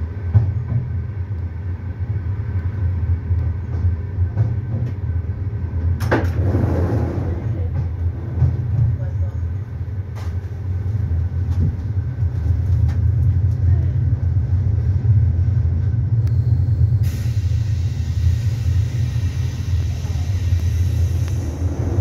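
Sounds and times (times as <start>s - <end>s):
train rumbling on rails: 0.0s - 22.0s.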